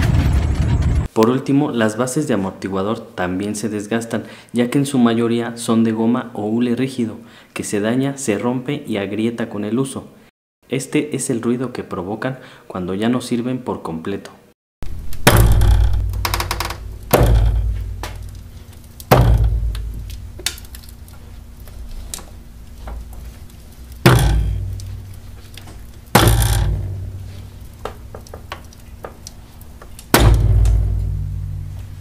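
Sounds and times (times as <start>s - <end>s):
low rumble: 0.0s - 1.1s, 14.9s - 27.8s, 30.2s - 32.0s.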